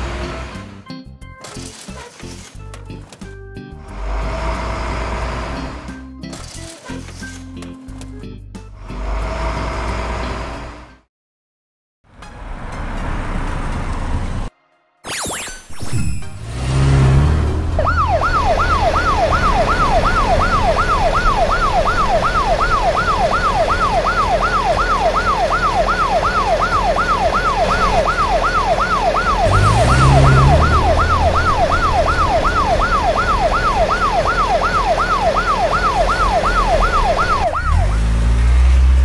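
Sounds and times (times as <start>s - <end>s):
police siren wailing: 15.1s - 38.4s
car engine hum: 16.4s - 39.0s.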